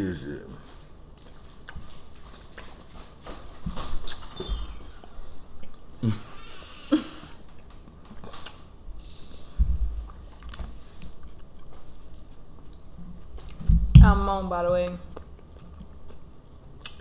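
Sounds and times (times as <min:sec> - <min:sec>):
people chewing with mouth clicks: 0:00.6 - 0:04.4, 0:05.5 - 0:13.8, 0:14.8 - 0:17.0
low hums: 0:12.7 - 0:15.9
low thump: 0:13.6 - 0:14.4.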